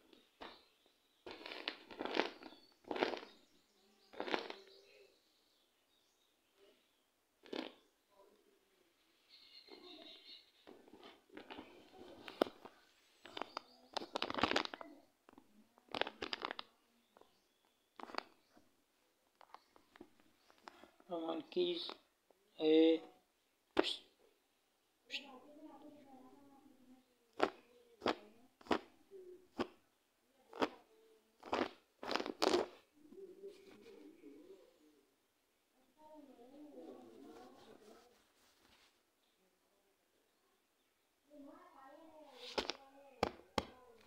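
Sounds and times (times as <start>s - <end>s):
balloon crackling against bark: 0.0s - 4.9s, 7.4s - 8.0s, 9.7s - 18.6s, 21.7s - 22.0s, 27.3s - 29.8s, 30.5s - 32.9s, 42.3s - 44.0s
rubber balloon squeaking: 1.3s - 3.4s, 4.1s - 4.7s, 9.3s - 14.9s, 31.4s - 32.9s.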